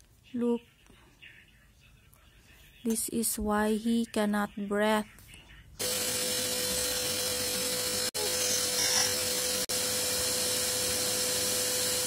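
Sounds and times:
vacuum cleaner running: 0:05.8 - 0:12.0.

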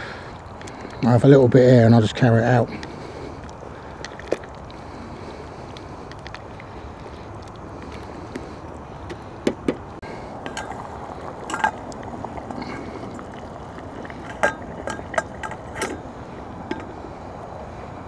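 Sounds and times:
steady background hiss: 0:00.0 - 0:18.0
cooking gear clinking: 0:10.4 - 0:11.8, 0:14.0 - 0:16.0.

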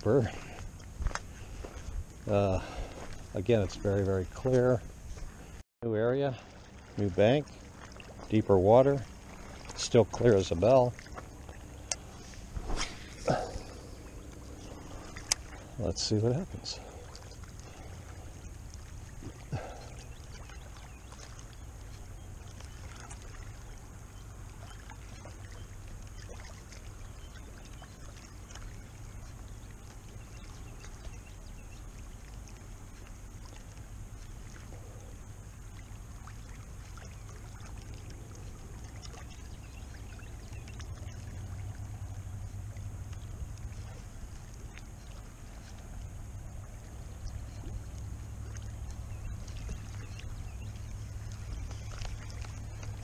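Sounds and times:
wind rumbling on microphone: 0:00.0 - 0:05.6, 0:07.0 - 0:25.6
faint ticks: 0:11.0 - 0:12.2, 0:42.0 - 0:46.1.

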